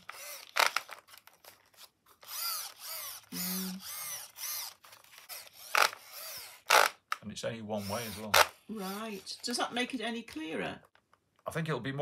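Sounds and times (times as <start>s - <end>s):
gears whirring and grinding: 0.0s - 1.6s, 2.2s - 7.0s.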